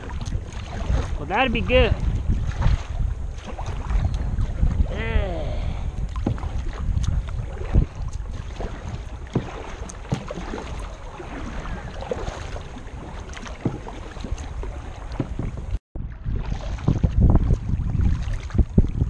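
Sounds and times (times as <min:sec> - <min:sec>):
paddle splashes: 0:00.0 - 0:19.0
wind on microphone: 0:00.0 - 0:19.0
paddle knocks against hull: 0:02.0 - 0:04.8, 0:06.0 - 0:15.8.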